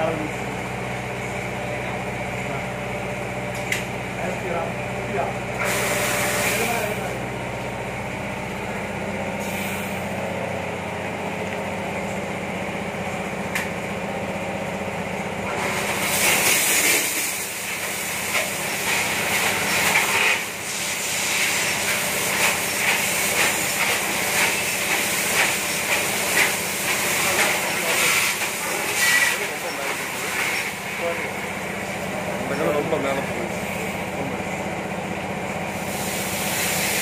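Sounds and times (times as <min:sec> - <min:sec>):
motor and pump humming: 0:00.0 - 0:37.0
pressurised water spray hissing: 0:05.6 - 0:06.7.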